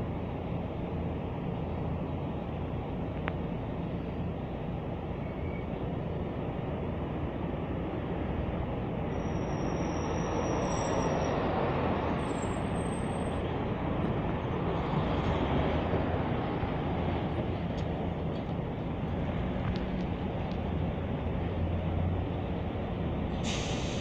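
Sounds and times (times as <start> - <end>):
road traffic rumble: 0.0 - 24.0
faint high-pitched squeals: 9.1 - 13.4.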